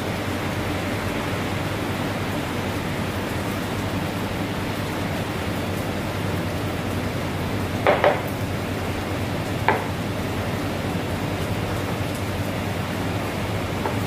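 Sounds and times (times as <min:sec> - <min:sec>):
restaurant kitchen rushing background: 0:00.0 - 0:14.0
sharp knock: 0:07.9 - 0:08.2.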